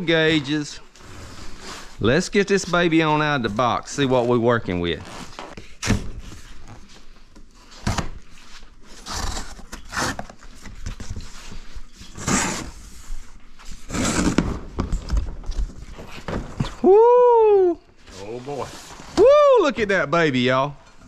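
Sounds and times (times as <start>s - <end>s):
cardboard tearing: 8.9s - 10.4s.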